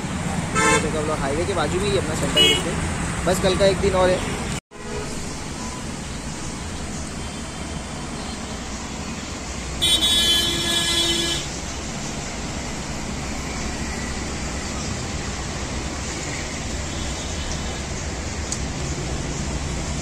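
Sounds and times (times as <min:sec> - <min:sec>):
road traffic rumble: 0:00.0 - 0:20.0
vehicle horn: 0:00.5 - 0:01.0, 0:02.3 - 0:02.8, 0:04.2 - 0:05.2, 0:09.8 - 0:11.5.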